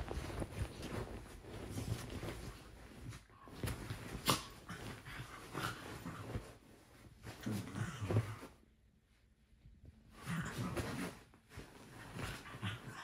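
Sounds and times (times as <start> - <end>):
bedding rustling: 0.0 - 13.0.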